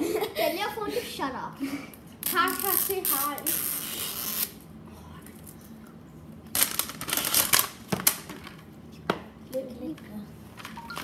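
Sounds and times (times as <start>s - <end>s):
plastic crinkling: 6.5s - 8.6s.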